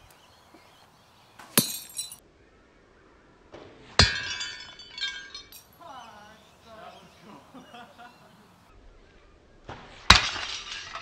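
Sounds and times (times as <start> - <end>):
ceramic plate shattering: 1.6 - 2.2, 4.0 - 5.8, 10.1 - 11.0.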